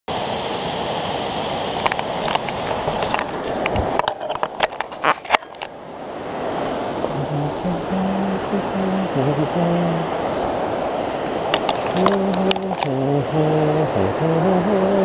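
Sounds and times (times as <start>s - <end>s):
steady rushing noise: 0.1s - 15.0s
camera handling clicks and knocks: 11.5s - 12.9s.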